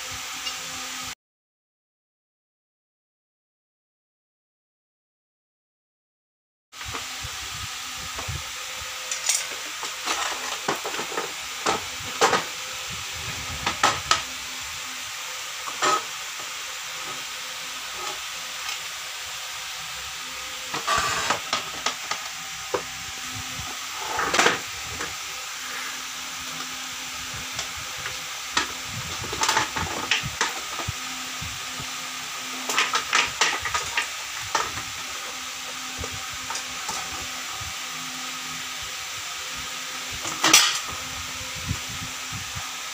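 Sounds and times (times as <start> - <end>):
steady hiss: 6.8 - 42.9
screws on hard floor: 15.6 - 19.0, 19.7 - 31.9.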